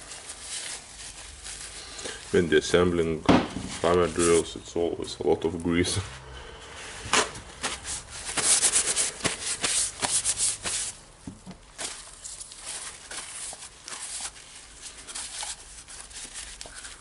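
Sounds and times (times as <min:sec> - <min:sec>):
paper towel rubbing and crumpling: 0:00.0 - 0:06.2, 0:06.8 - 0:17.0.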